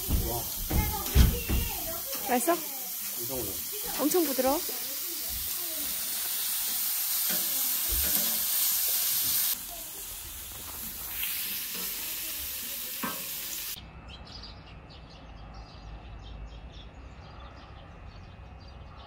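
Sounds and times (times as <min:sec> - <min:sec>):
meat sizzling on grill: 0:00.0 - 0:13.8.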